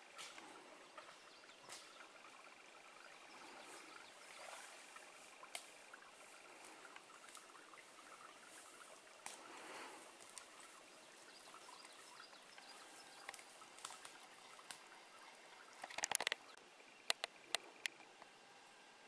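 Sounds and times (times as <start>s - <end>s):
small ticks: 5.0s - 18.3s
loud close cracking clicks: 15.8s - 16.5s, 17.1s - 18.0s.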